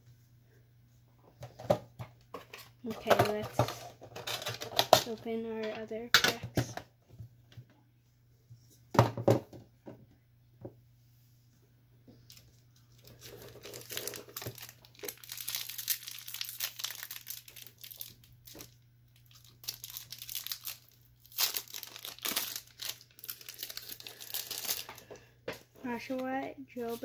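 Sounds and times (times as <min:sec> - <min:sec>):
foil wrappers crinkling and tearing: 0:03.0 - 0:05.2, 0:13.0 - 0:25.3.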